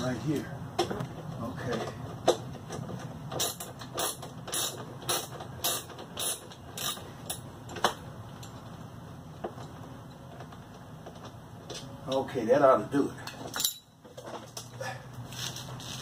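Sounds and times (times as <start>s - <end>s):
ratchet wrench ratcheting: 3.4s - 7.4s.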